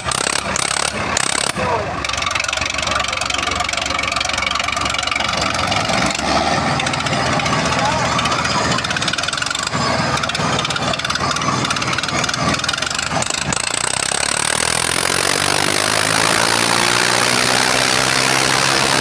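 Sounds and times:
tractor diesel engines running hard: 0.0s - 19.0s.

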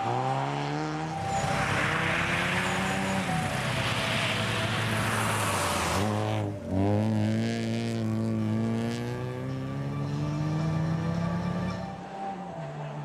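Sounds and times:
rally car engine at high revs: 0.0s - 13.0s
studded tyres hissing on ice: 1.2s - 6.4s.

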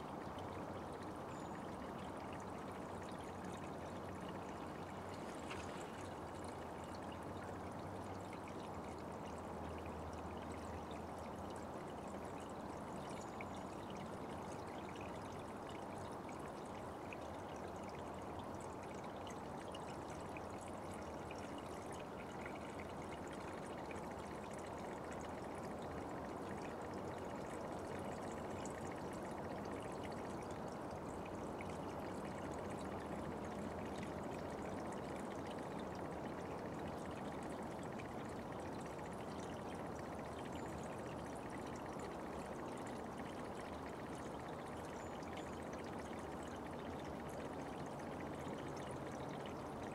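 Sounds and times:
brook water rushing: 4.0s - 7.4s.

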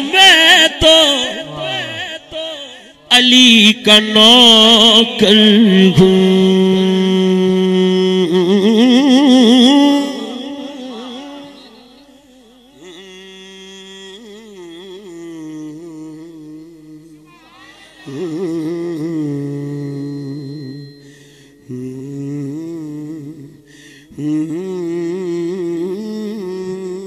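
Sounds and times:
man humming long notes: 18.1s - 26.7s.

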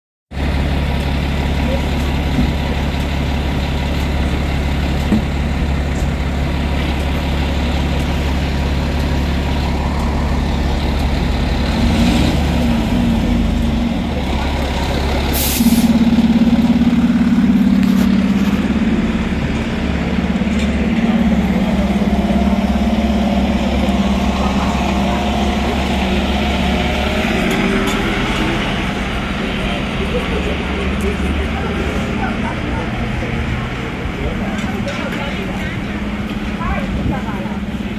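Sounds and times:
diesel truck engines: 0.3s - 37.9s
air brakes hissing: 15.3s - 16.0s.

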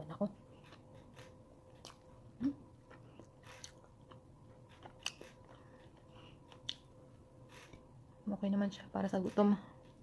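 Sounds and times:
faint electrical hum: 0.0s - 10.0s
person chewing: 0.5s - 7.9s.

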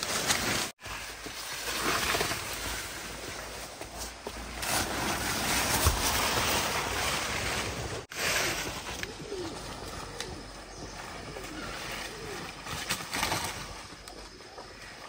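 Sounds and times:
leafy branches rustling: 0.0s - 15.0s
outdoor ambience: 0.0s - 15.0s
dove cooing: 8.8s - 14.9s.

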